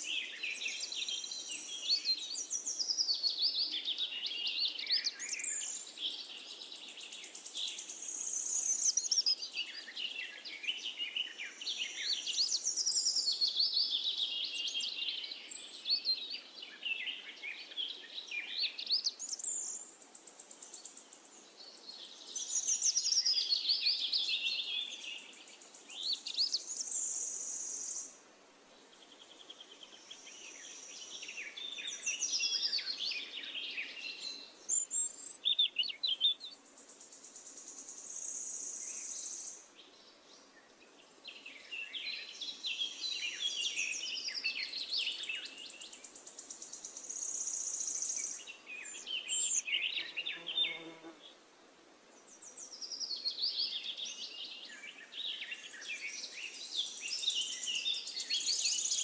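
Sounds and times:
birds chirping and trilling: 0:29.0 - 0:51.2.

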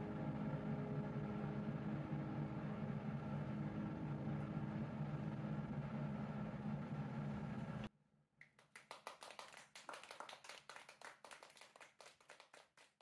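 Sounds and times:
low hum: 0:00.0 - 0:07.9
faint hand clapping: 0:08.4 - 0:13.0.

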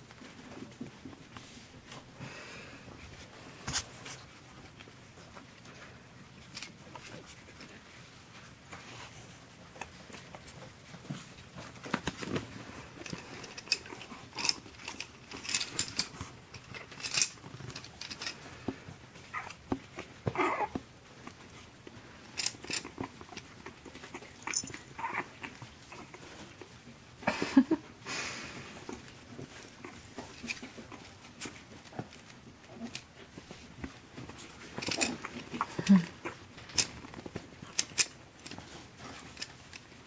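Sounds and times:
clicks and rustling on bedding: 0:00.0 - 0:02.2, 0:02.8 - 0:27.2, 0:27.9 - 0:40.0
puppy yips and grumbles: 0:19.3 - 0:19.6, 0:20.2 - 0:20.8, 0:24.1 - 0:26.2.

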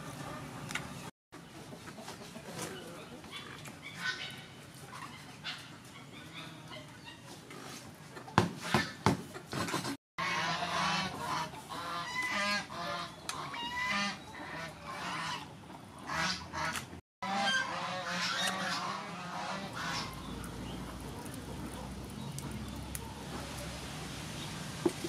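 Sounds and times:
water splashing: 0:19.3 - 0:25.0.

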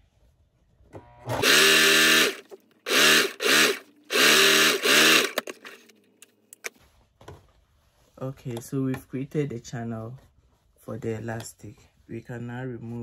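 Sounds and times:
sewing machine motor whine: 0:01.2 - 0:05.8.

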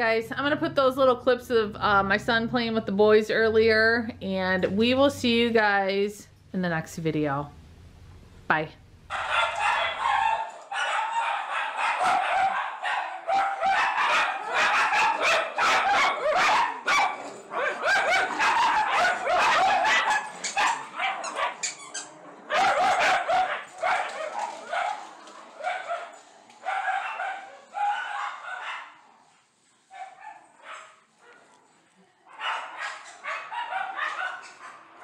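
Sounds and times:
small dogs barking and yapping: 0:09.1 - 0:29.3, 0:29.9 - 0:35.0.

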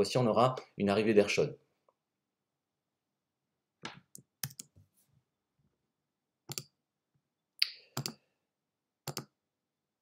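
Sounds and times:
computer clicks: 0:04.2 - 0:04.8, 0:06.5 - 0:06.7, 0:07.9 - 0:08.2, 0:09.0 - 0:09.3.

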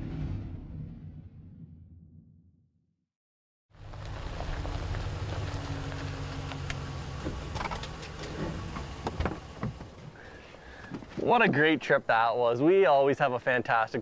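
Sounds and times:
truck engine rumbling: 0:03.8 - 0:11.6.

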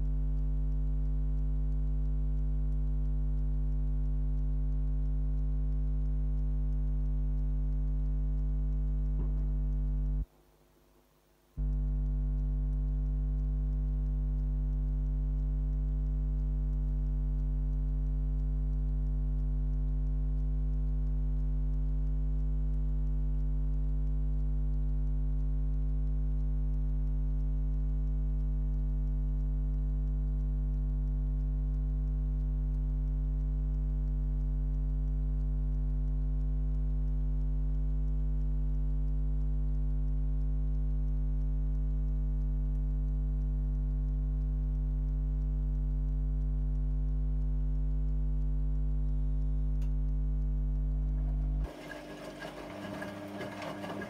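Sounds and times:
washing machine humming: 0:51.0 - 0:54.0.

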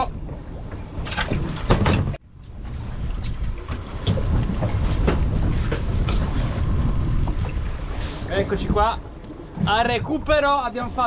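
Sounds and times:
outboard motor rumbling: 0:00.0 - 0:11.0
fishing rod knocks and clatter: 0:00.3 - 0:02.2.

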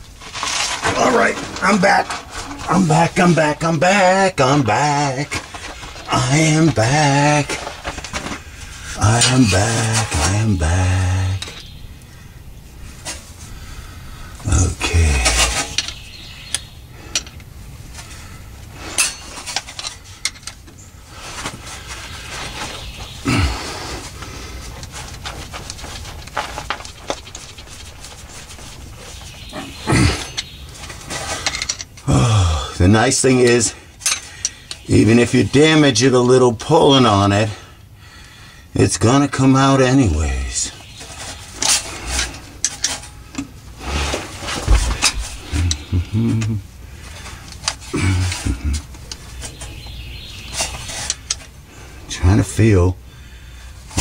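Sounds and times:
person grunting: 0:23.3 - 0:23.8, 0:32.1 - 0:32.8.

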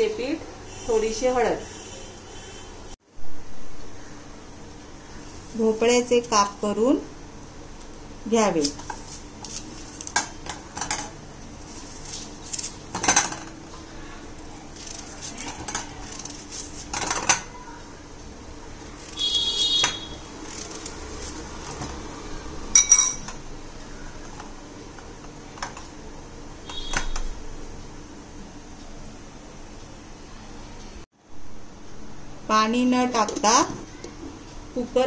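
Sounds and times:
steel dish ringing: 0:22.8 - 0:23.3.

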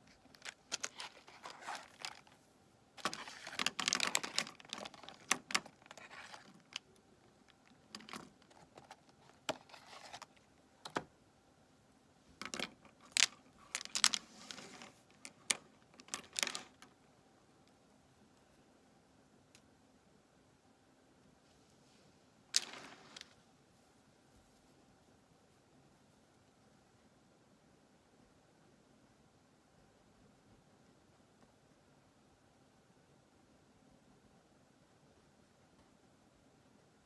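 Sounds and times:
plastic pencils clicking and clattering: 0:00.0 - 0:02.4, 0:03.0 - 0:11.1, 0:12.4 - 0:17.0, 0:22.5 - 0:23.4
plastic package crinkling: 0:00.1 - 0:02.4, 0:03.0 - 0:10.4, 0:12.4 - 0:16.9.

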